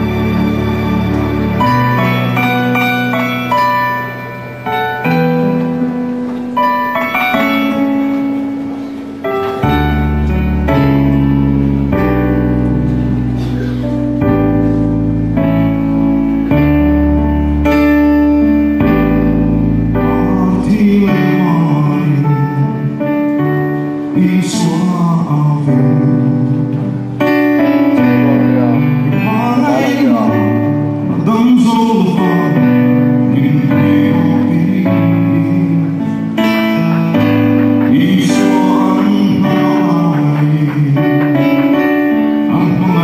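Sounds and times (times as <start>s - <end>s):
sustained accompaniment chords: 0.0s - 43.0s
man singing into microphone: 20.0s - 23.1s, 23.8s - 26.7s, 28.0s - 43.0s.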